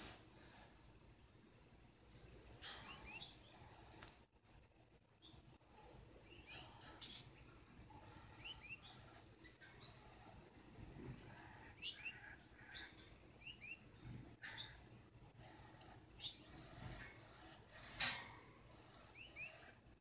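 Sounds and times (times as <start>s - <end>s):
finch high chirps: 2.6s - 3.7s, 6.2s - 7.6s, 8.4s - 10.0s, 11.8s - 13.9s, 19.2s - 19.7s.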